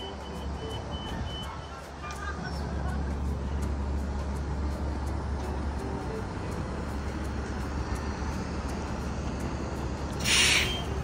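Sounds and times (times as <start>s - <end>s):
road traffic noise: 0.0s - 11.0s
loud hiss: 10.2s - 10.8s.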